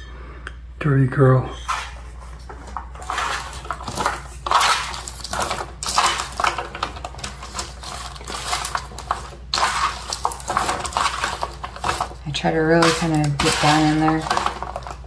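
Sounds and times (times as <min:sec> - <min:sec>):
beans tossed on baking paper: 0:03.0 - 0:15.0.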